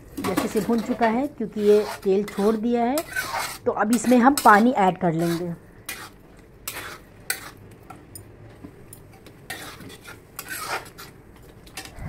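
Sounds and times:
metal spatula scraping metal pan: 0.2s - 7.6s, 9.5s - 11.1s.

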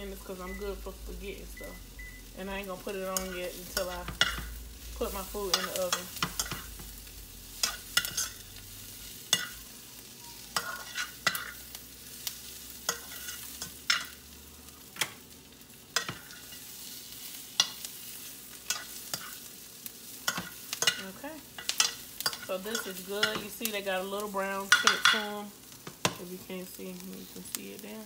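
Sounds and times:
vegetables sizzling: 0.0s - 28.0s
metal spoon scraping pan: 7.6s - 8.4s, 10.6s - 11.6s, 12.8s - 14.2s.

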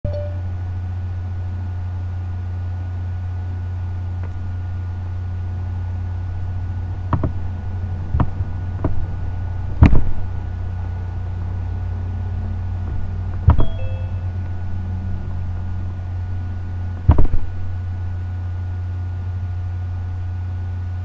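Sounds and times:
steady low hum: 0.1s - 21.0s
sharp clicks or knocks: 7.1s - 7.4s, 17.0s - 17.5s.

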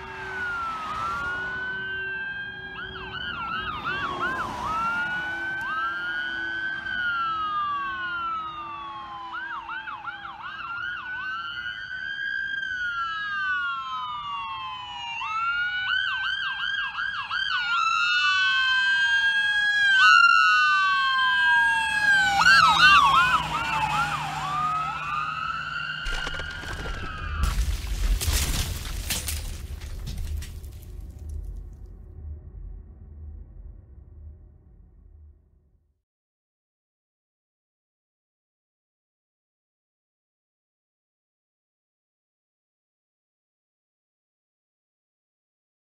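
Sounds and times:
emergency vehicle sirens: 0.0s - 31.6s
loud crashing noises: 26.0s - 31.3s.

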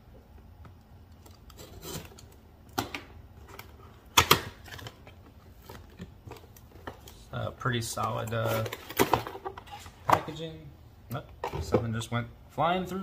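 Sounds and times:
box handling clicks and rustles: 1.1s - 10.5s
box cutter scraping: 1.6s - 2.2s.

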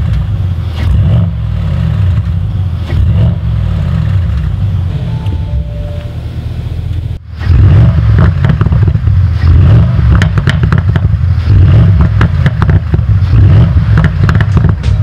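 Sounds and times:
car engine revving: 0.0s - 15.0s
exhaust crackles and pops: 6.9s - 15.0s.

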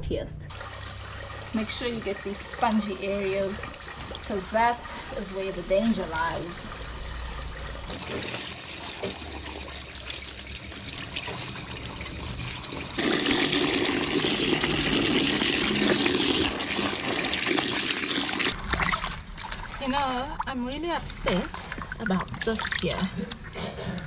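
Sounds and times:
tap water running into sink: 0.5s - 19.0s.

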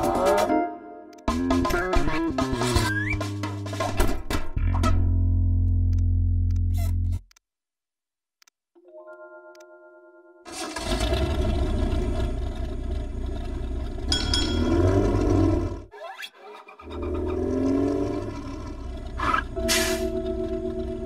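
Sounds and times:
cartoon bus engine rumble: 10.5s - 21.0s.

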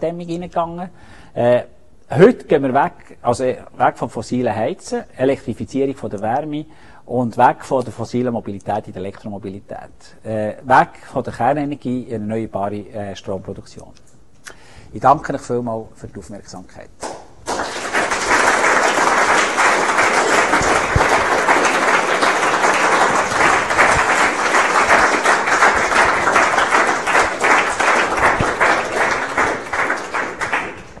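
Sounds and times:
audience applauding: 17.0s - 31.0s.

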